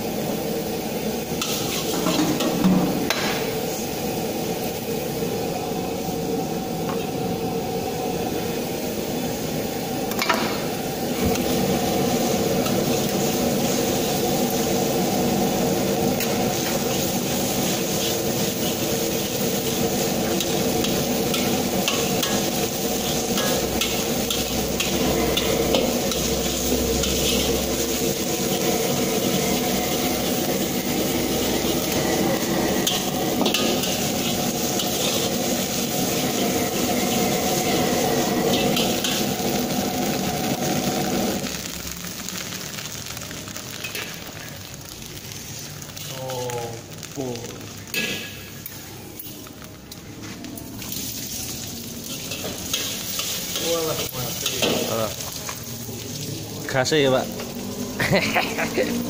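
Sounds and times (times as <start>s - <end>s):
food sizzling: 0.0s - 59.0s
steady hum: 19.8s - 41.4s.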